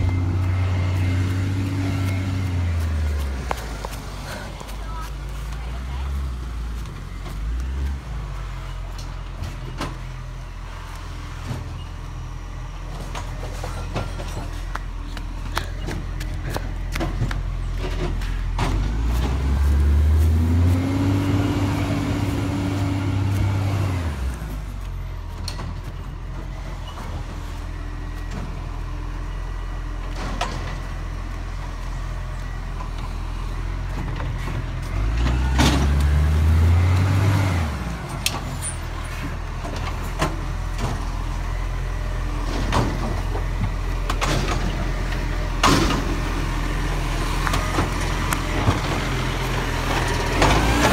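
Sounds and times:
diesel truck engine revving: 0:00.0 - 0:50.9.

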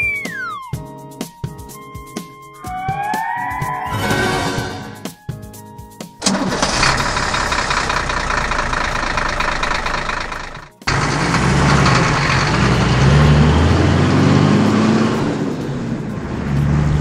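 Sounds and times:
engine starting and revving: 0:06.2 - 0:17.0
truck engine rattling: 0:06.2 - 0:17.0.

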